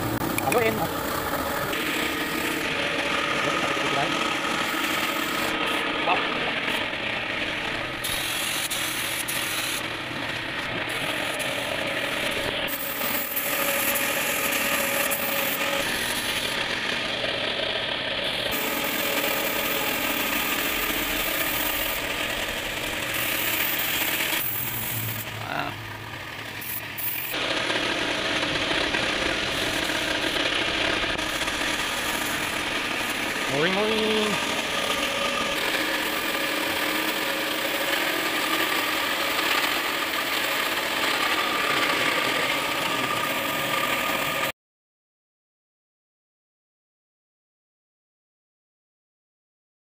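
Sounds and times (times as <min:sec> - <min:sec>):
air compressor running: 0:00.0 - 0:44.5
spray gun hissing: 0:08.0 - 0:09.8, 0:18.5 - 0:25.5.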